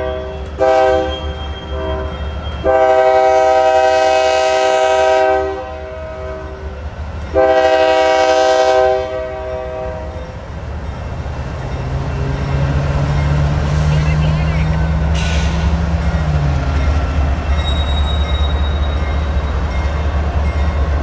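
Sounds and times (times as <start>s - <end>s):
train air horn blasts: 0.0s - 6.7s, 7.3s - 10.2s
low rumble of passing train: 0.0s - 21.0s.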